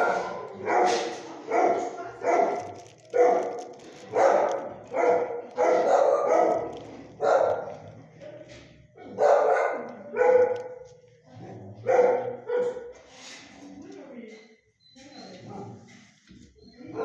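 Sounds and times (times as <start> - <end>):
dog barking: 0.0 - 7.8, 9.0 - 13.0, 15.4 - 15.9.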